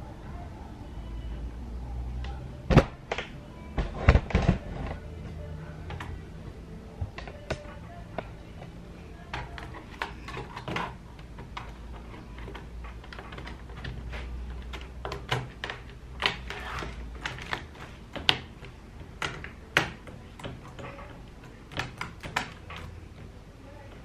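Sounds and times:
plastic keyboard clicks and taps: 9.3s - 21.0s.

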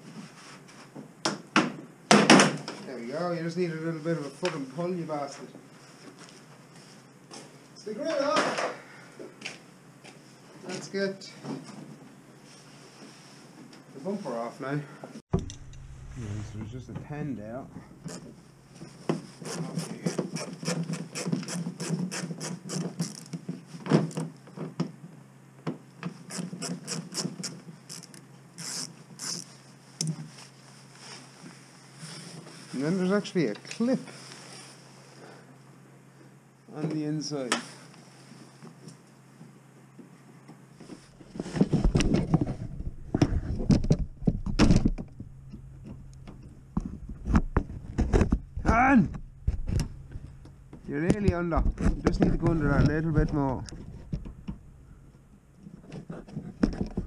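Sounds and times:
loud knock: 15.3s - 17.2s.

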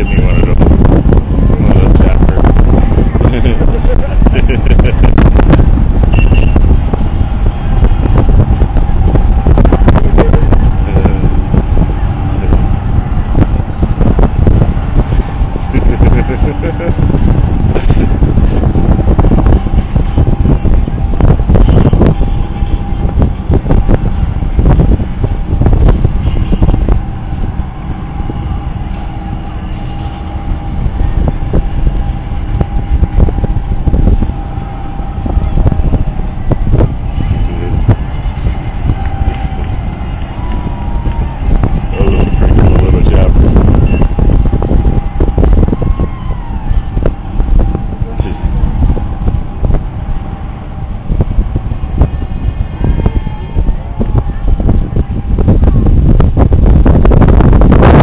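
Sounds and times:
heavy low rumble: 0.0s - 58.0s
minibike engines passing: 0.0s - 58.0s
thin steady whine: 0.0s - 58.0s
wind buffeting microphone: 0.0s - 58.0s.

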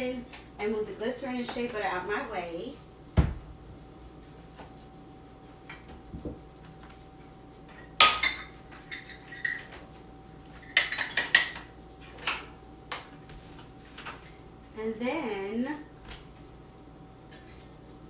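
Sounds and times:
faint steady hum: 0.0s - 18.0s
pots and lids clinking: 7.7s - 9.8s, 10.6s - 12.5s.

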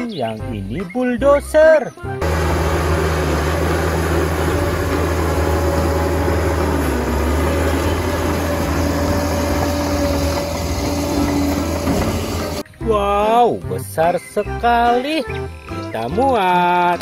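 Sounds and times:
diesel engine running under load: 2.2s - 12.6s.

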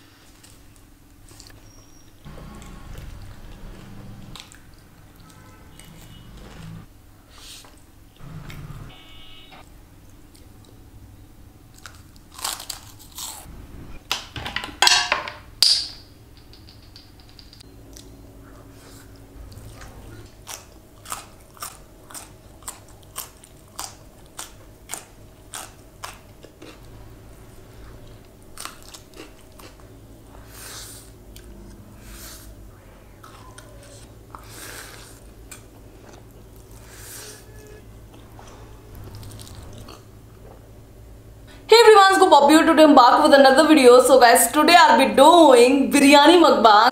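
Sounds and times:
crunching biscuit bites: 11.7s - 13.5s, 20.2s - 26.9s
chewing with crisp clicks: 17.9s - 18.2s, 19.0s - 26.9s, 28.0s - 30.0s, 33.2s - 36.8s.

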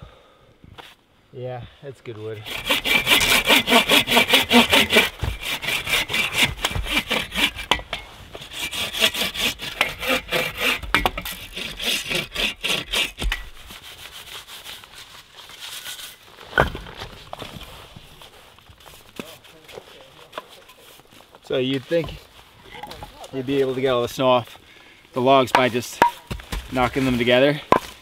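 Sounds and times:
hand saw cutting log: 2.4s - 16.2s, 25.5s - 28.0s.

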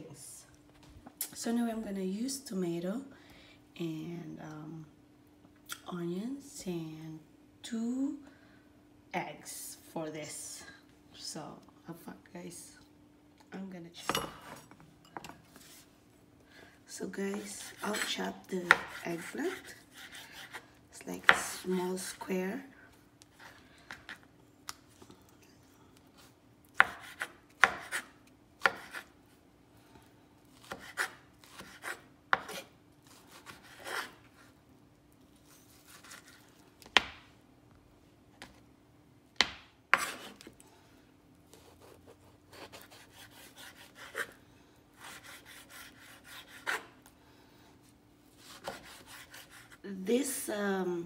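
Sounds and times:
knife chopping on wooden board: 17.4s - 20.6s, 26.8s - 29.0s, 30.6s - 32.6s, 48.4s - 49.8s.

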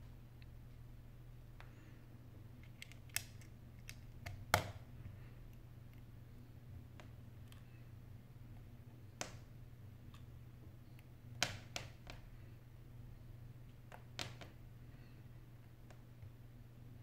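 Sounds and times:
faint low hum: 0.0s - 17.0s
fingers clicking on phone parts: 2.6s - 4.8s.

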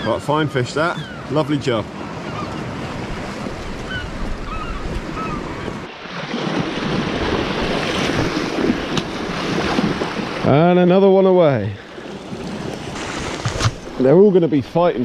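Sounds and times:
waves washing against rocks: 5.8s - 10.6s, 11.9s - 14.2s.

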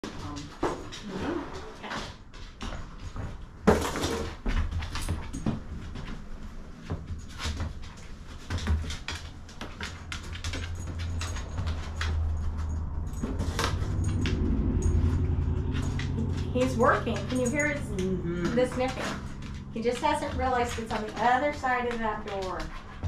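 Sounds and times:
steady low hum: 9.4s - 23.0s.

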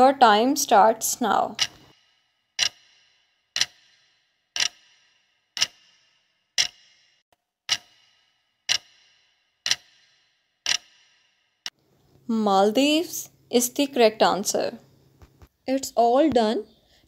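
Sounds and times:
countdown clock ticks: 1.5s - 11.8s.

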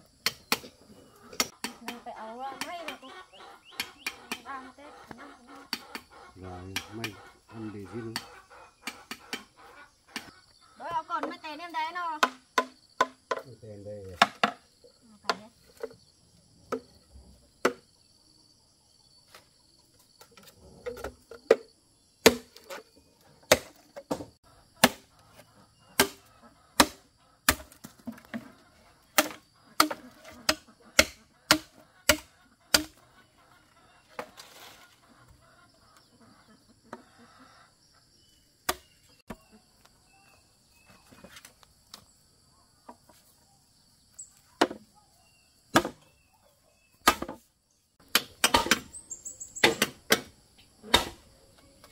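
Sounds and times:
insects trilling: 0.0s - 51.9s
machete chopping bamboo: 0.2s - 0.7s, 12.2s - 13.4s, 14.2s - 14.6s, 17.6s - 17.8s, 21.5s - 22.8s, 23.5s - 25.1s, 26.0s - 28.3s, 29.2s - 33.0s, 38.7s - 39.0s, 45.7s - 46.0s, 47.0s - 47.4s, 48.0s - 48.9s, 49.6s - 51.2s.

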